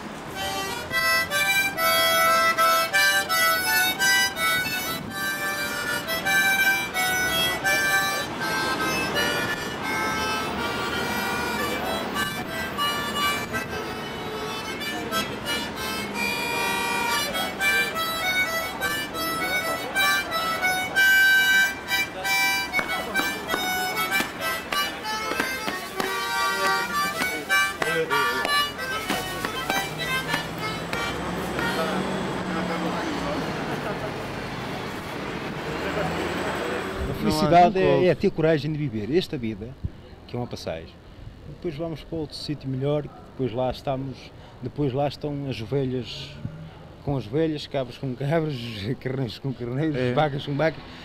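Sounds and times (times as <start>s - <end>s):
harmonica tune: 0.0s - 33.9s, 48.2s - 49.4s.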